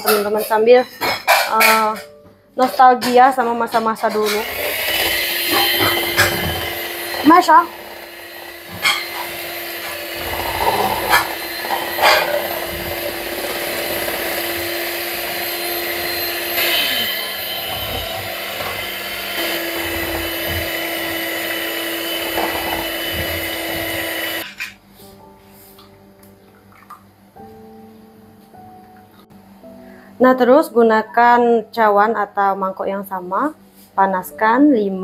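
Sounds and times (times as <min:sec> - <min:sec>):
electric hand mixer whisking: 0:03.0 - 0:24.4.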